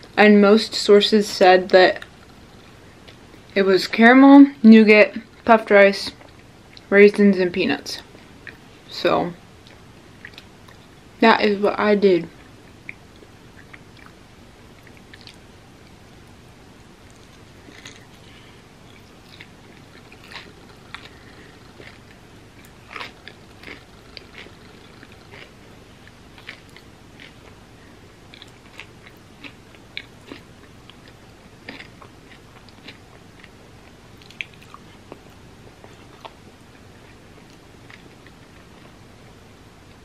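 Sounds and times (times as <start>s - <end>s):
person chewing crunchy bar: 17.0s - 27.6s, 28.3s - 38.9s.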